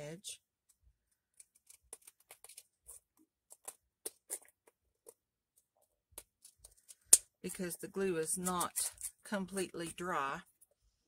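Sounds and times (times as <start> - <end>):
scissors snipping paper: 1.3 - 5.2, 8.3 - 9.2.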